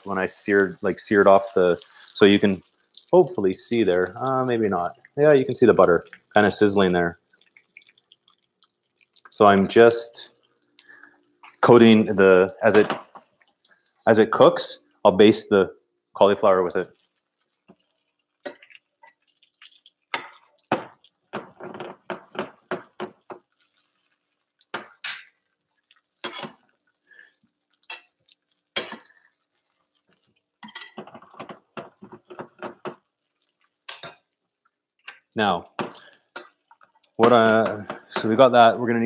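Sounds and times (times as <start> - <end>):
butter spattering: 16.9 - 38.4.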